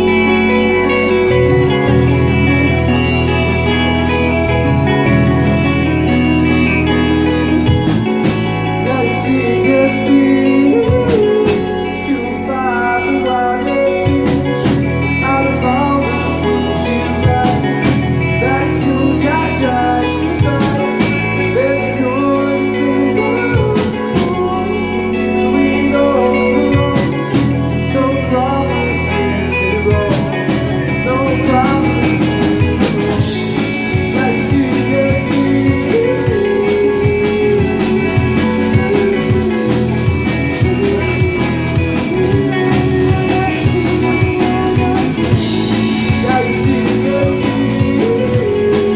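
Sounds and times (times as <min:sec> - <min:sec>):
live band playing blues rock: 0:00.0 - 0:48.9
drumming: 0:29.9 - 0:48.9.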